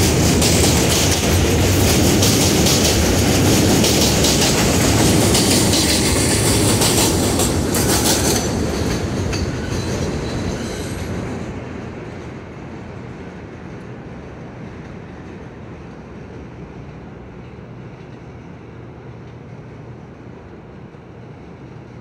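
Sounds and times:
train wheels clacking over joints: 0.0 - 11.4
train wheels squealing: 4.0 - 12.2.

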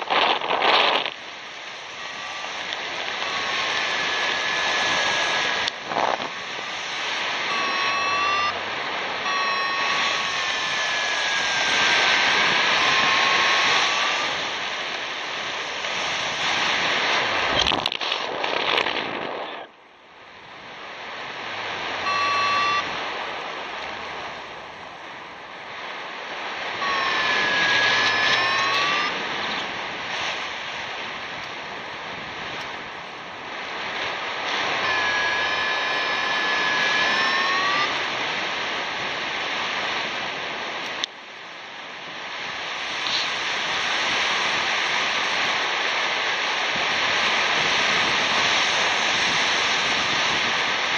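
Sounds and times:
variometer electronic tones: 0.0 - 16.8, 22.0 - 23.1, 26.7 - 30.4, 34.6 - 38.4
wind rushing over microphone: 0.0 - 50.9.

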